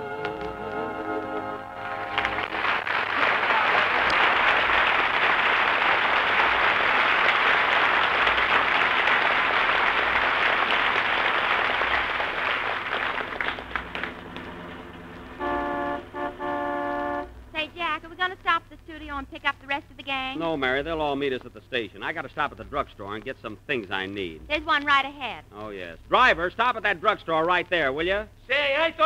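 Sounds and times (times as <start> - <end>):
audience applauding: 0.2 - 16.4
car horn toots: 15.3 - 17.4.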